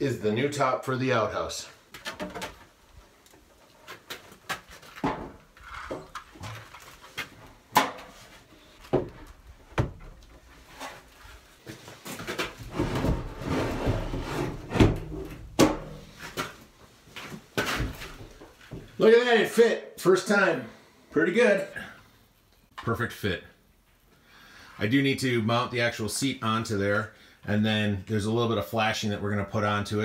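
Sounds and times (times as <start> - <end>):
wood scraping and shuffling: 1.8 - 19.0
wooden knocks and clunks: 1.9 - 2.7, 4.4 - 6.8, 8.8 - 10.4, 12.2 - 16.5.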